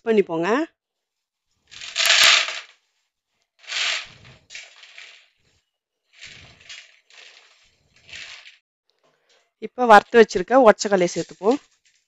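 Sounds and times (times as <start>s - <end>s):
dry snack pouring into bowl: 1.8s - 2.7s, 3.6s - 5.2s.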